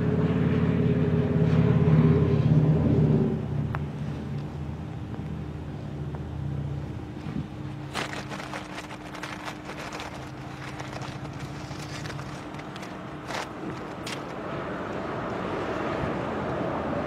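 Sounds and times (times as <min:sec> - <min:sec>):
distant vehicle engine rumble: 0:00.0 - 0:17.0
brief crackles: 0:07.9 - 0:14.4.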